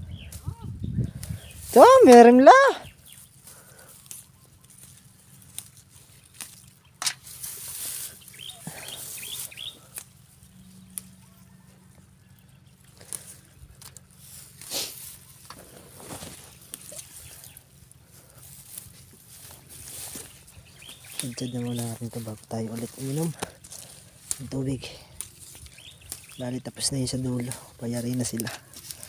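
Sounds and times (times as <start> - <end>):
bird chirping: 0.0 - 1.6, 8.0 - 13.7, 19.5 - 28.5
leaves rustling: 0.0 - 29.0.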